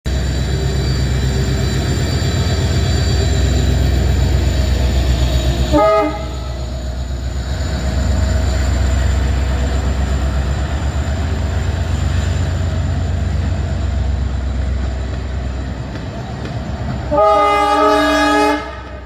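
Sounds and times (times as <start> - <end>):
diesel locomotive engine drone: 0.0 - 19.0
train horn blast: 5.7 - 6.6, 17.1 - 19.0.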